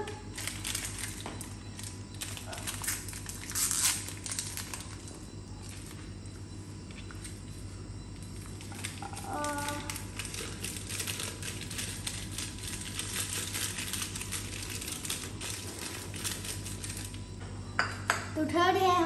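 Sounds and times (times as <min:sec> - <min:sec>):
foil sachet crinkling: 0:00.3 - 0:06.0, 0:08.5 - 0:17.2.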